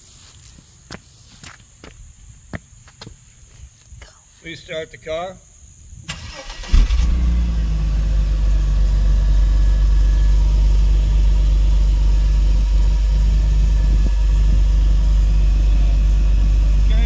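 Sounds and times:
car engine idling: 6.2 - 17.0.

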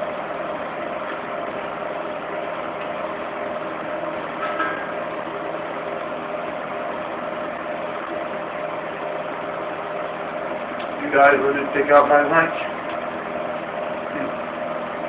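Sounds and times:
fan heater running: 0.0 - 15.0.

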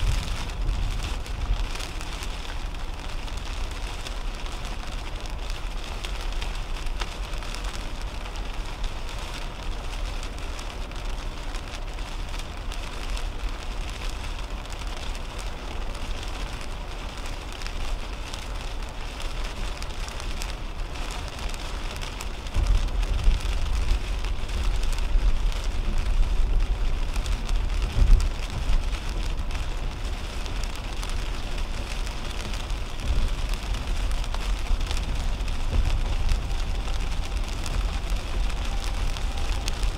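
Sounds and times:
deep low rumble: 0.0 - 8.6, 20.4 - 39.9
rain hitting car windshield: 0.0 - 39.9
tyre and road noise: 0.0 - 39.9.

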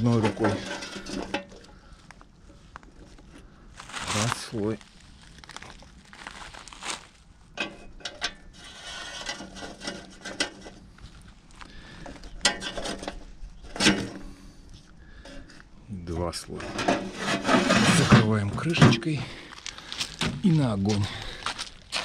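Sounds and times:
rustling: 0.0 - 7.4.

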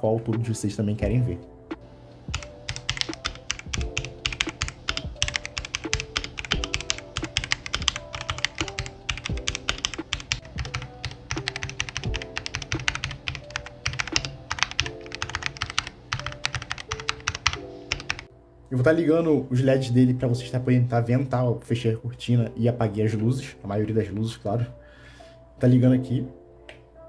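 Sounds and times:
background music with held notes: 0.0 - 27.0
mechanical keyboard typing: 2.3 - 18.3.

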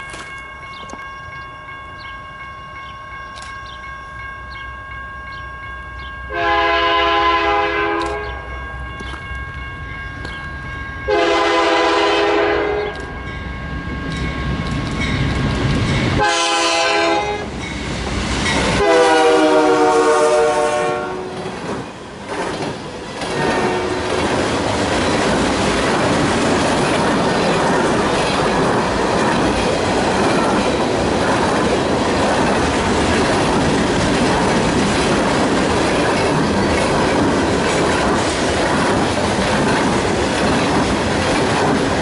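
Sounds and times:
freight train rumbling: 0.0 - 42.0
train cars rolling past: 0.0 - 42.0
locomotive air horn blasts: 6.3 - 8.4, 11.1 - 13.0, 16.2 - 17.5, 18.8 - 21.4, 23.3 - 24.1.

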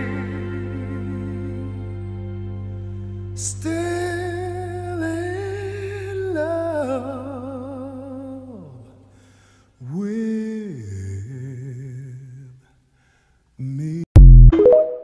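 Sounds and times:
person humming with vibrato: 0.0 - 2.3.

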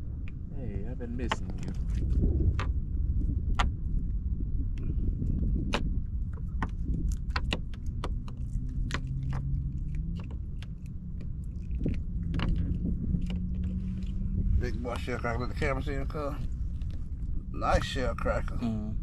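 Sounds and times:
steady low rumble: 0.0 - 19.0.

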